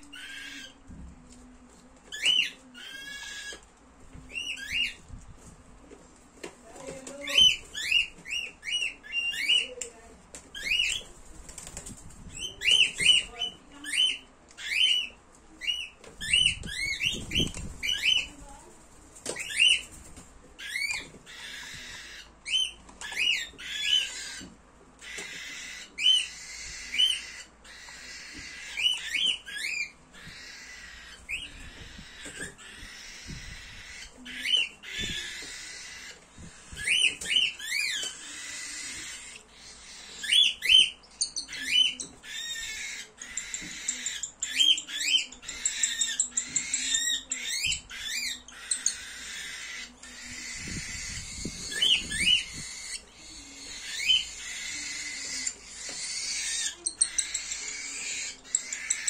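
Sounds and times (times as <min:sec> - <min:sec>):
cockatiel chick chirping: 0:00.0 - 0:00.8, 0:02.1 - 0:03.6, 0:04.2 - 0:05.0, 0:07.1 - 0:10.0, 0:20.6 - 0:59.0.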